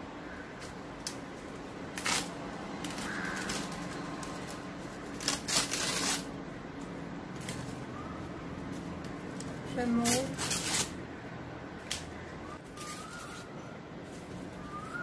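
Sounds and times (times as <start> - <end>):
dry leaves rustling and tearing: 1.0 - 6.3, 8.6 - 11.0, 12.6 - 15.0.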